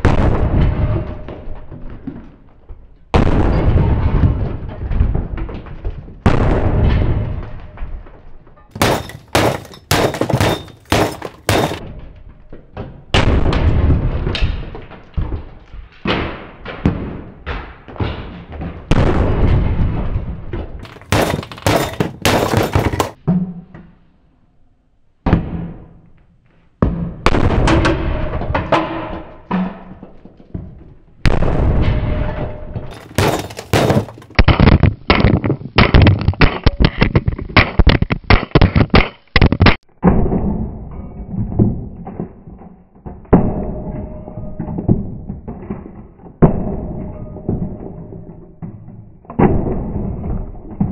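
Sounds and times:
plastic cracking and scattering: 0:32.9 - 0:39.8.

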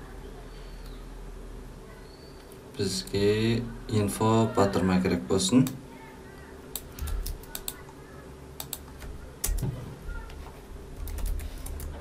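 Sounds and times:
keyboard keystrokes: 0:08.6 - 0:09.7, 0:11.0 - 0:11.9.

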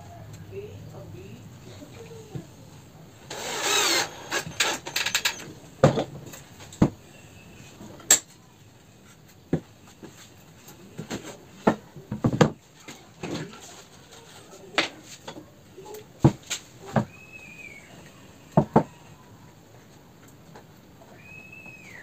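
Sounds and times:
cordless drill driving screw: 0:03.3 - 0:05.4
wooden knocks and clunks: 0:11.1 - 0:12.6.

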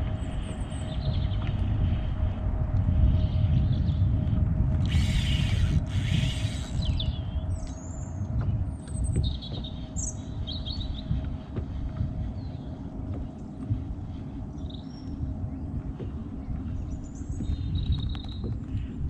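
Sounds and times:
steady low rumble: 0:00.0 - 0:19.0
small birds chirping: 0:04.9 - 0:08.1.

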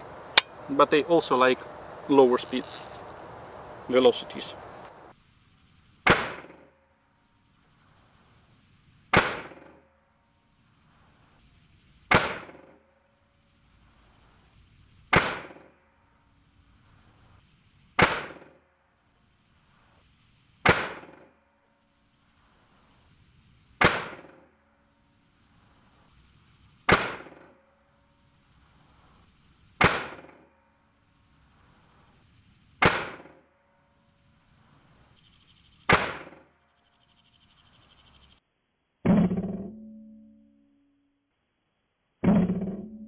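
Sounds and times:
air rifle shots: 0:18.0 - 0:18.5, 0:20.6 - 0:21.3, 0:23.8 - 0:24.5, 0:26.9 - 0:27.6, 0:29.8 - 0:30.4, 0:32.8 - 0:33.4, 0:35.9 - 0:36.5.

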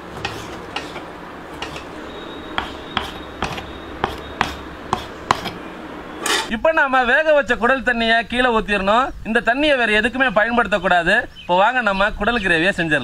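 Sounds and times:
knife chopping on wooden block: 0:00.0 - 0:01.9, 0:02.6 - 0:05.6.

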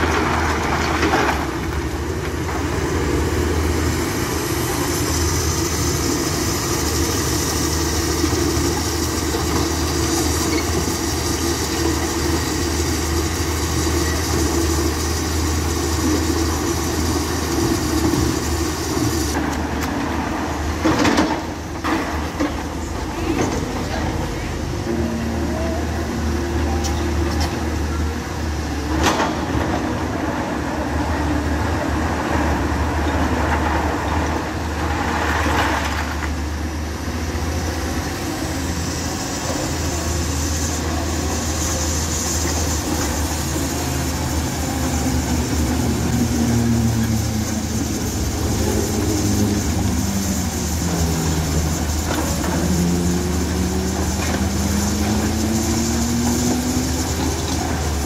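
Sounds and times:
excavator diesel engine drone: 0:00.0 - 0:58.0
machine whine: 0:38.0 - 0:58.0.

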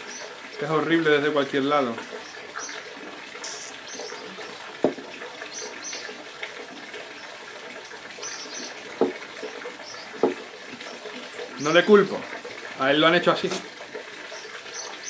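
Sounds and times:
rock knocking on pot: 0:04.8 - 0:05.1, 0:09.0 - 0:09.2, 0:10.2 - 0:10.4.

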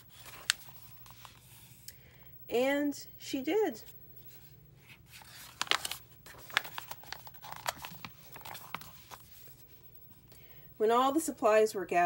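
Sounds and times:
paper page rustling: 0:00.0 - 0:01.9, 0:04.2 - 0:09.9.

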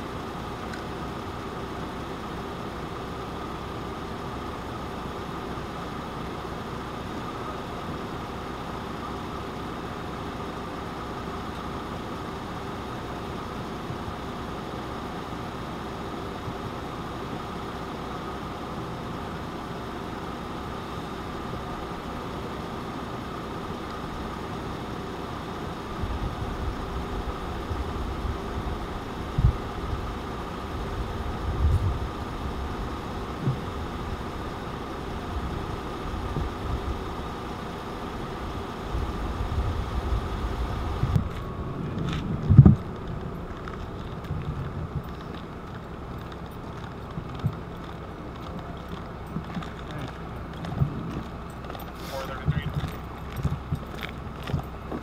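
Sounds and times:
vehicle engine idling: 0:00.0 - 0:55.0
low rumbling: 0:20.1 - 0:55.0.

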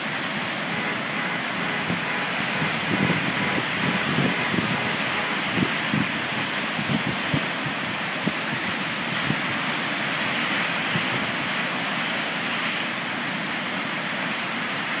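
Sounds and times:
waves breaking: 0:00.0 - 0:15.0
wind buffeting microphone: 0:00.7 - 0:09.6.

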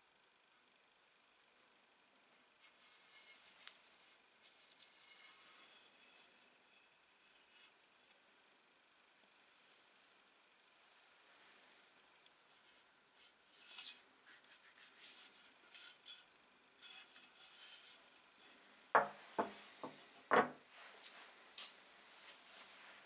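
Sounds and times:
metal tool rubbing and scraping: 0:02.6 - 0:07.7, 0:12.7 - 0:18.6
tool knocking on wooden workbench: 0:19.0 - 0:20.6.

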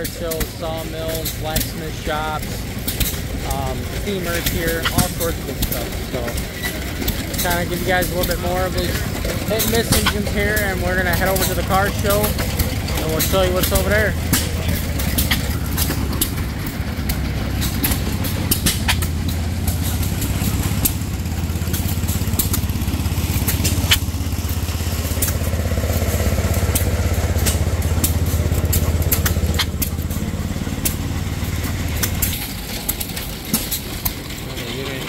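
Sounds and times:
engine pops: 0:00.0 - 0:35.0
stationary engines droning: 0:00.0 - 0:35.0.

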